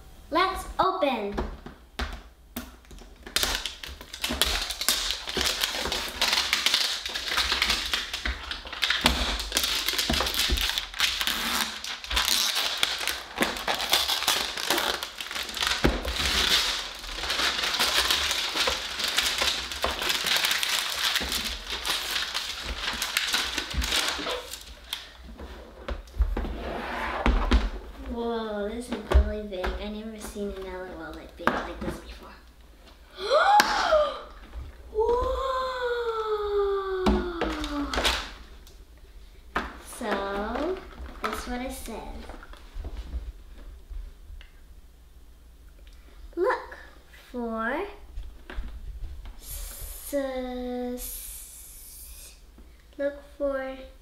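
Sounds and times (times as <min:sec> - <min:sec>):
paper wrapping tearing and crinkling: 0:03.1 - 0:25.1, 0:36.8 - 0:38.4.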